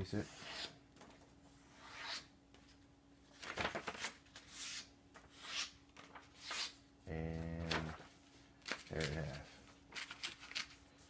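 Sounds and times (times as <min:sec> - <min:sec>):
paper rustling: 0:03.3 - 0:06.8, 0:07.6 - 0:11.0.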